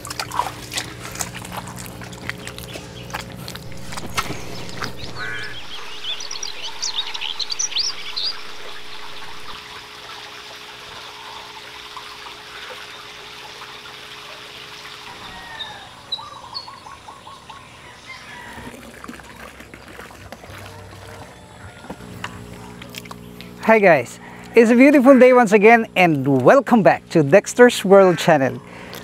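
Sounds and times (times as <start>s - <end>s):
low hum: 1.5s - 9.8s
birds chirping: 2.4s - 9.6s, 15.1s - 18.8s.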